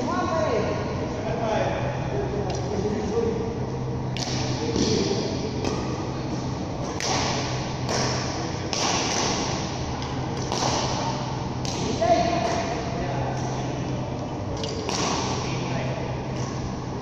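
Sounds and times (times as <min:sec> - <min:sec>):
racket hitting shuttlecock: 0:04.2 - 0:12.8, 0:14.6 - 0:15.6.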